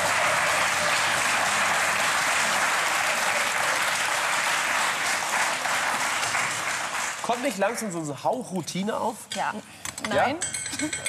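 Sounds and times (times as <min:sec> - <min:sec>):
audience applauding: 0:00.0 - 0:08.1.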